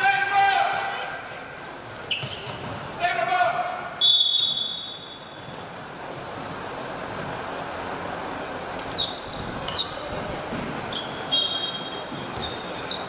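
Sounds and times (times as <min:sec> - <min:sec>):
indoor sports hall noise: 0:00.0 - 0:13.0
shoes squeaking on hardwood: 0:08.2 - 0:13.0.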